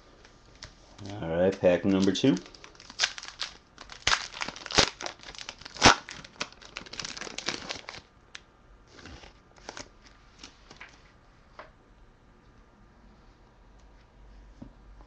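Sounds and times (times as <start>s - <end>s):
cards rustling: 0.6s - 8.0s
foil wrapper tearing and crinkling: 1.0s - 8.1s.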